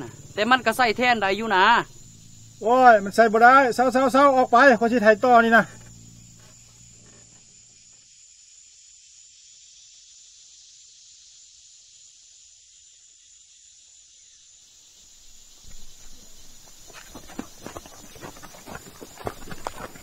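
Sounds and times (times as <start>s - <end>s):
high hiss of field ambience: 0.0s - 20.0s
footsteps on loose dirt: 15.2s - 20.0s.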